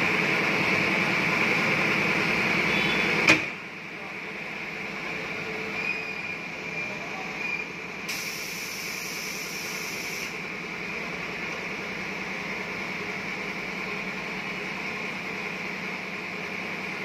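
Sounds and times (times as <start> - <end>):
workshop background noise: 0.6 - 12.5.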